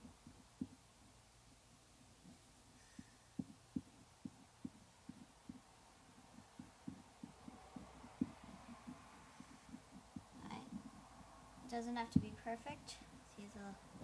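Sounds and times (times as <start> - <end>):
pencil tapping on paper: 2.2 - 11.0.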